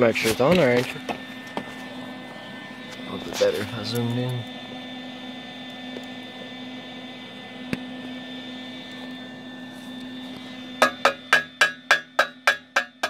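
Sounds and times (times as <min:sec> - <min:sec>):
machine hum: 0:00.0 - 0:13.0
hammer tapping steel pipe: 0:10.8 - 0:13.0.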